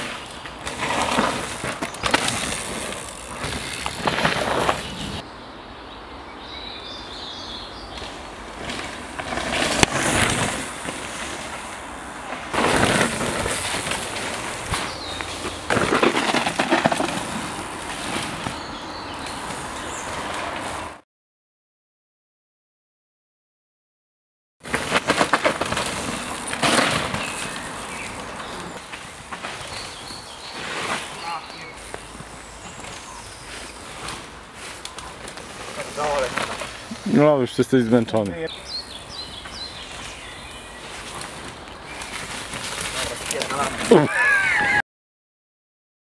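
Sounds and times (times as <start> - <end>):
faint birdsong: 0.0 - 8.9, 14.6 - 16.2, 16.8 - 21.0, 25.7 - 44.8
bike tyres on dirt: 0.0 - 21.0, 24.6 - 44.8.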